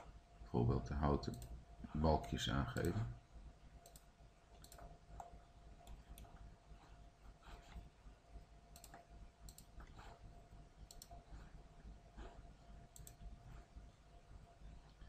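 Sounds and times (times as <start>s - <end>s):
low electrical hum: 0.0s - 15.0s
computer mouse clicks: 1.3s - 1.6s, 2.2s - 3.0s, 3.8s - 6.4s, 8.7s - 10.2s, 10.8s - 11.4s, 12.9s - 13.3s.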